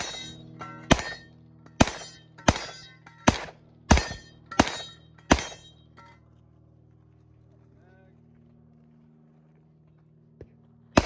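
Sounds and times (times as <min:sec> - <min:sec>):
pistol shots: 0:00.0 - 0:05.7
clang of steel targets: 0:00.0 - 0:06.3.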